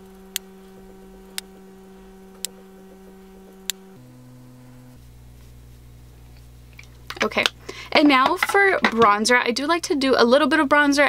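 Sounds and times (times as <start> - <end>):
sharp clicks: 3.5 - 4.0.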